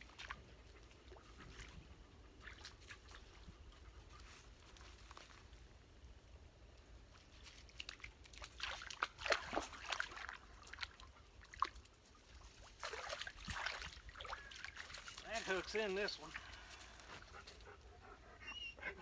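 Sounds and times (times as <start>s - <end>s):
dog splashing in water: 2.4s - 3.4s, 7.4s - 17.3s.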